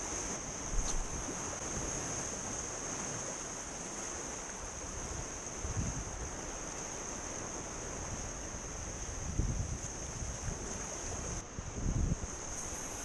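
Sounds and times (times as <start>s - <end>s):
sea surf: 0.0s - 13.0s
wind buffeting microphone: 4.9s - 6.5s, 7.6s - 13.0s
steady high-pitched whine: 12.1s - 13.0s.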